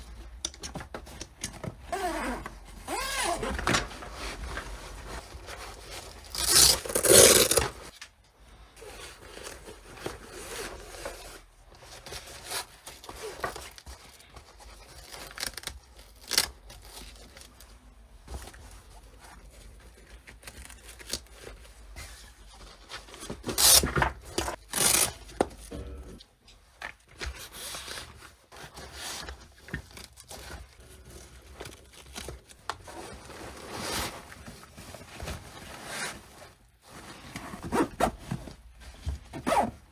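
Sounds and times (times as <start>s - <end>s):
fabric rustling and scraping: 2.2s - 7.9s
hook-and-loop straps ripping open: 6.3s - 7.8s, 24.6s - 25.2s.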